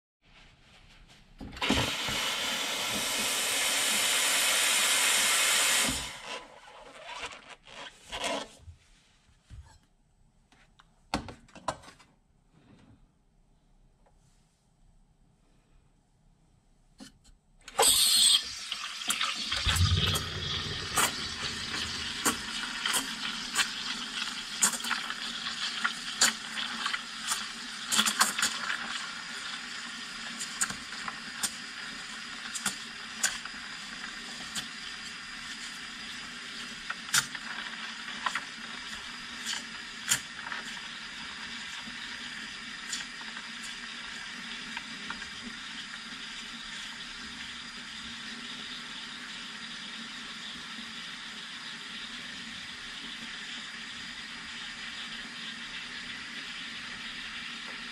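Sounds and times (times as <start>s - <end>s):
steam wand hissing in milk: 1.7s - 6.8s, 17.8s - 57.9s.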